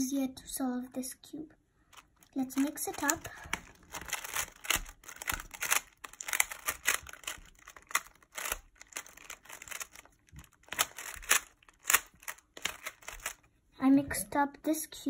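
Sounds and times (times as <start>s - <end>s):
puzzle cube clicking as turned: 2.0s - 13.5s.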